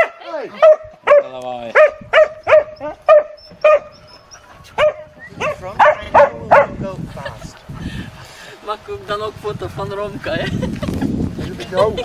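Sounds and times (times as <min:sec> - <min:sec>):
dog barking: 0:00.0 - 0:04.0, 0:04.8 - 0:06.8.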